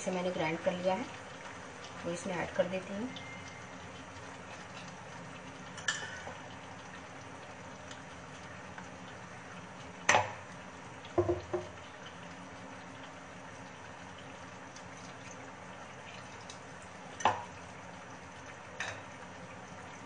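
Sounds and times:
utensils knocking against pan: 11.2s - 11.7s.

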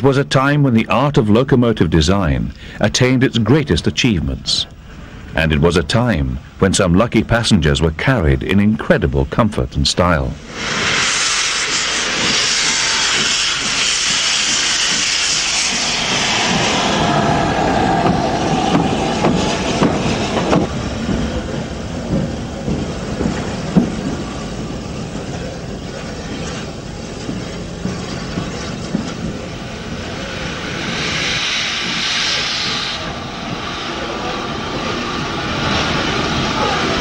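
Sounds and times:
steam locomotive exhaust beats: 10.3s - 37.0s
steam hissing: 10.4s - 25.4s, 27.8s - 37.0s.

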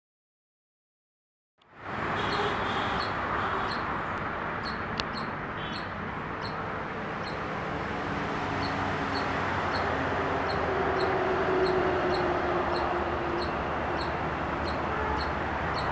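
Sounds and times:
squirrel chirping: 2.2s - 3.9s, 4.6s - 7.5s, 8.5s - 15.9s.

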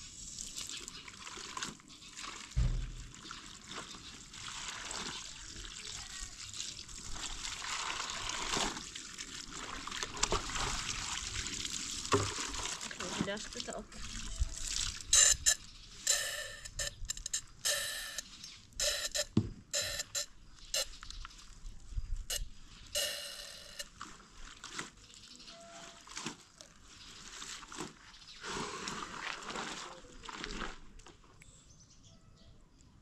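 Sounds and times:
cloth rubbing and splashing in water: 25.8s - 31.0s.

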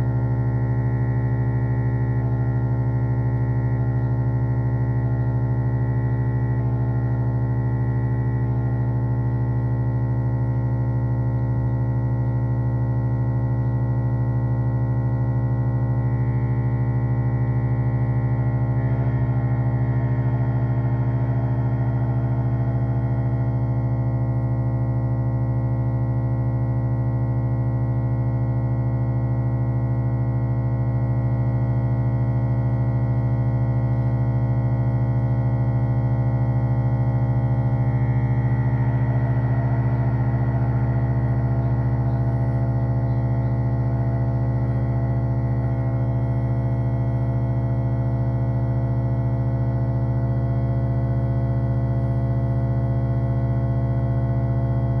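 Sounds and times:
garbage disposal motor humming: 0.0s - 55.0s.

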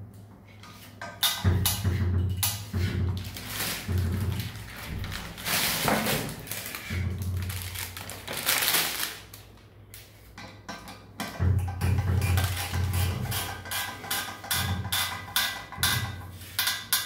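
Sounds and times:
plastic film crinkling: 3.2s - 9.7s.

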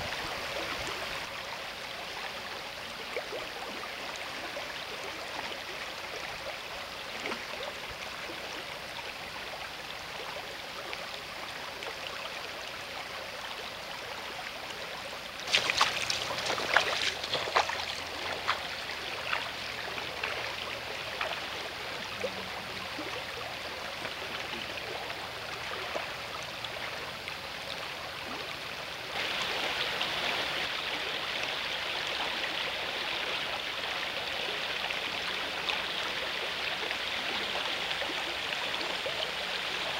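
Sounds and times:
river rushing over stones: 0.0s - 1.8s, 15.3s - 24.5s, 29.0s - 39.9s
sharp splashes and clicks: 15.4s - 21.6s.

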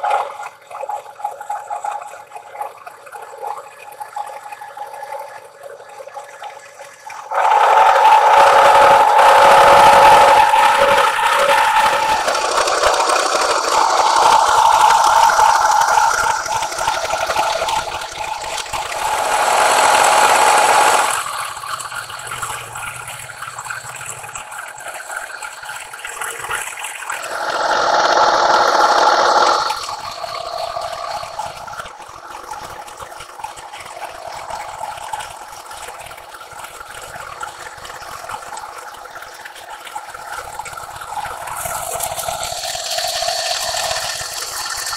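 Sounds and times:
face mill cutting steel: 7.3s - 21.5s, 27.2s - 31.6s.

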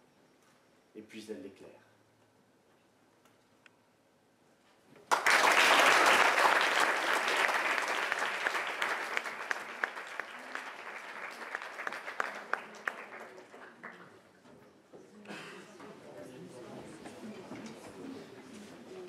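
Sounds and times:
audience applauding: 5.1s - 14.2s.

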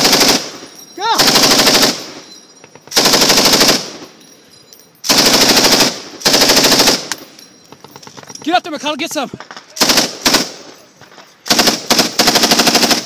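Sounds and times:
machine gun bursts: 0.0s - 0.6s, 1.2s - 2.2s, 2.9s - 4.0s, 5.0s - 7.2s, 9.8s - 10.7s, 11.4s - 13.0s.

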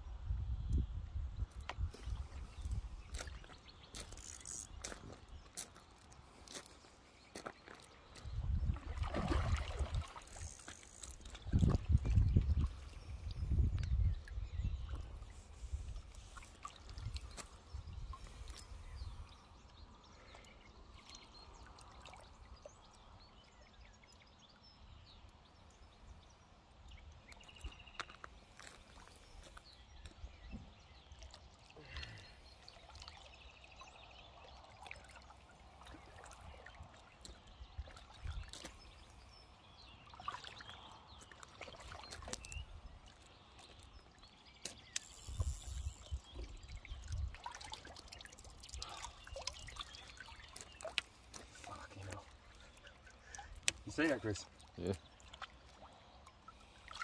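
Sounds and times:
landing net sloshing through water: 8.4s - 13.2s, 39.9s - 57.0s
fish splashing in water: 8.8s - 11.5s, 44.7s - 53.8s.

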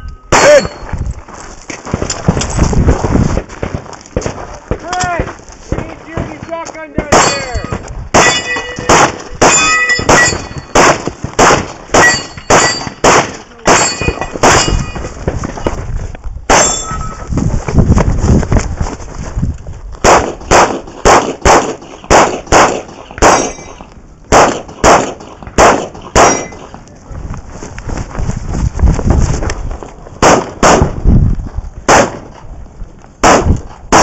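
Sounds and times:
steel targets ringing: 0.0s - 1.0s, 7.1s - 10.8s, 12.0s - 13.0s, 13.6s - 15.1s, 16.5s - 17.3s, 23.3s - 23.8s, 26.2s - 26.6s
pistol shots: 7.0s - 15.0s, 16.5s - 16.9s, 20.0s - 26.8s, 30.2s - 31.0s, 31.9s - 32.4s, 33.2s - 34.0s.

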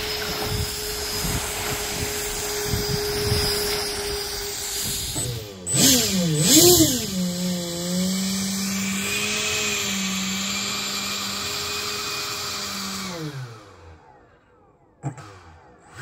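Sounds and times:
electric fan whining: 0.0s - 14.4s.

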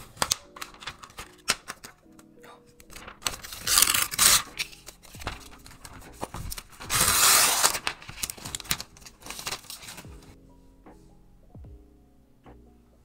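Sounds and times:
plastic wrap crinkling and tearing: 0.0s - 1.9s, 2.8s - 10.2s
loud plastic rips: 2.9s - 10.1s.

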